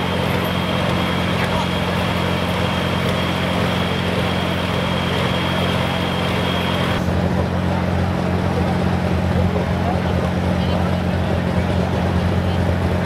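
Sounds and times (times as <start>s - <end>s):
thin high whine: 0.0s - 7.1s
tractor engine idling: 0.0s - 13.0s.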